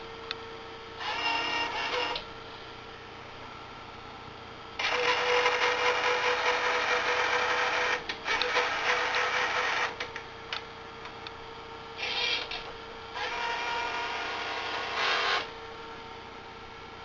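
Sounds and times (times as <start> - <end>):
gear motors whirring: 1.0 - 2.2, 12.0 - 15.5.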